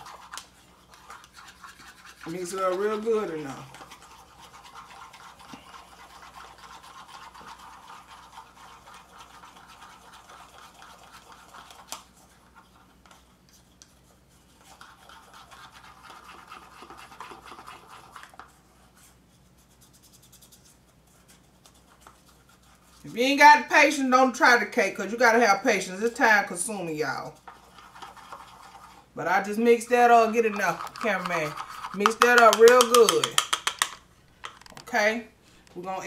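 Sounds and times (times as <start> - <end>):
metal utensil stirring in cup: 29.8 - 34.7
utensil tap: 30.6 - 34.7.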